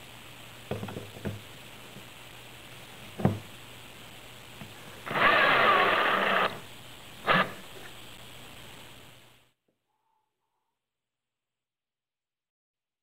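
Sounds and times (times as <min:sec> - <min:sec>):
cordless drill running: 0:05.0 - 0:07.7.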